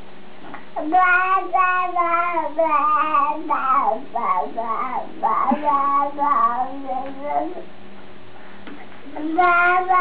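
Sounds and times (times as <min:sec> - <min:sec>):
baby vocalising: 0:00.8 - 0:07.7.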